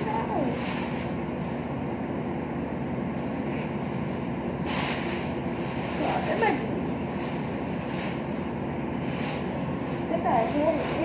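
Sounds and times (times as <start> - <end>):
low background hum: 0.0 - 11.0
plastic bag crinkling: 4.6 - 11.0.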